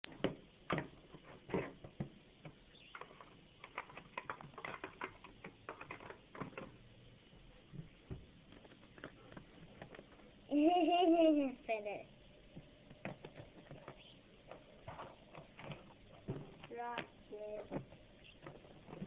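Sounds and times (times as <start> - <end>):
birds tapping and clicking on plastic: 0.0 - 6.8, 12.6 - 19.0.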